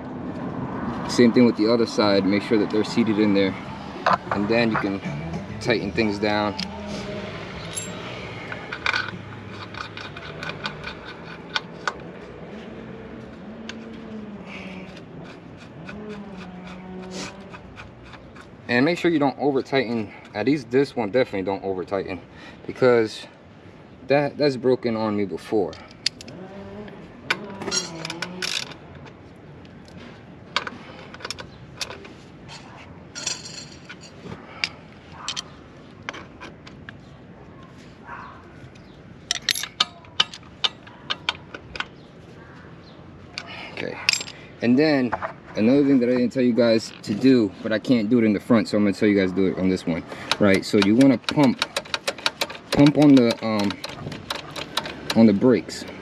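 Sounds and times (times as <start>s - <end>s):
metallic clinks of allen key: 7.6s - 8.1s.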